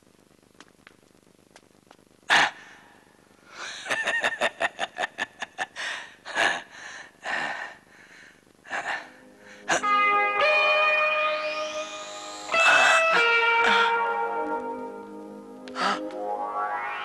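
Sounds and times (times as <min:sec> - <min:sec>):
person laughing: 0:03.8 - 0:05.8.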